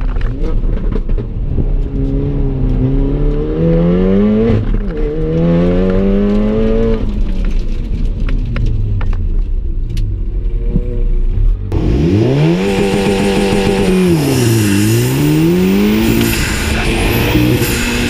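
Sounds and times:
car engine revving: 0.2 - 7.6, 10.7 - 18.0.

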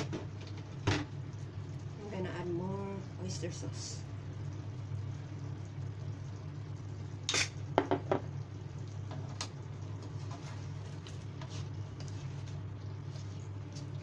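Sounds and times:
steady low hum: 0.0 - 14.0
spatula stirring and scraping wok: 10.1 - 13.9.

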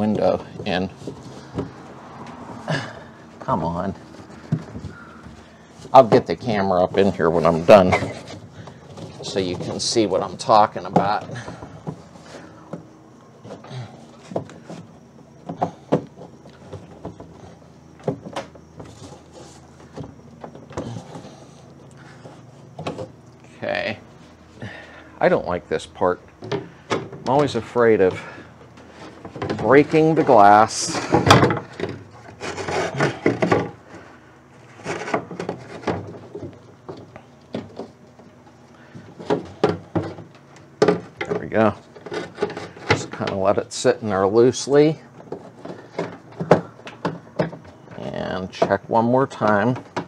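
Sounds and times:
metal clunks clicks and scrapes: 26.4 - 43.6.

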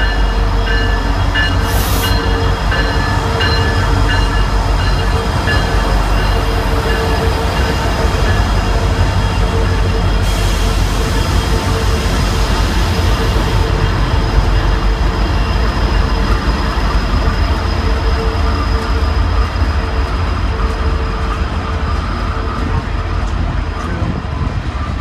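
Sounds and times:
locomotive engine rumble: 0.0 - 25.0.

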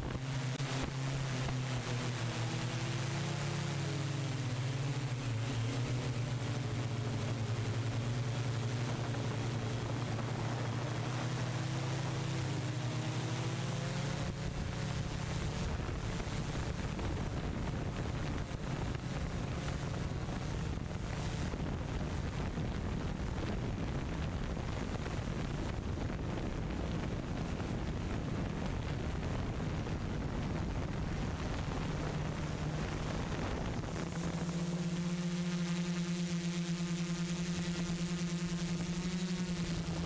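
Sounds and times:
multirotor propellers humming: 0.0 - 40.0
wind rushing over microphone: 0.0 - 40.0.

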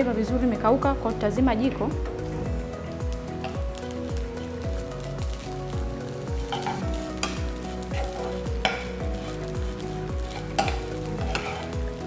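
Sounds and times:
music with thumping beat: 0.8 - 12.0
spatula scraping rice in a pan: 6.5 - 11.8.

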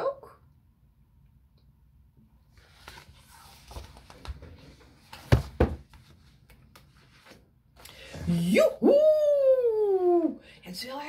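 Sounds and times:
paper rustling: 2.5 - 7.5
sharp knocks on book: 5.2 - 5.9.

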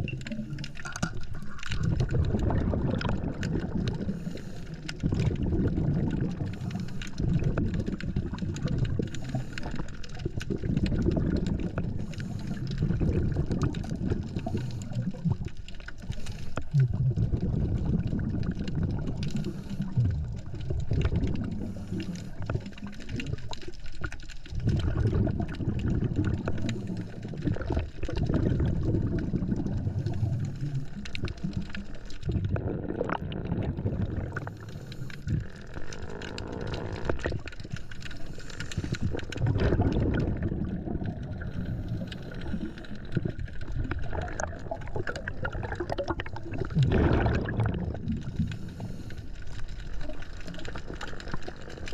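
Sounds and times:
underwater bubbles gurgling: 0.0 - 51.9.

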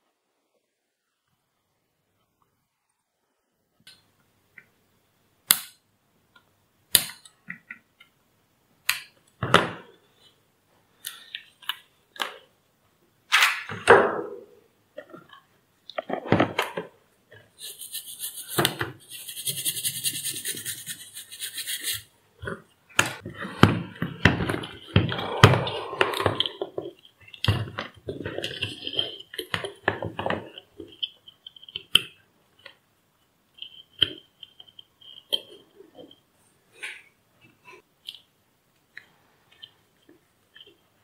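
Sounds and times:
scratchy rubbing: 17.6 - 22.1.

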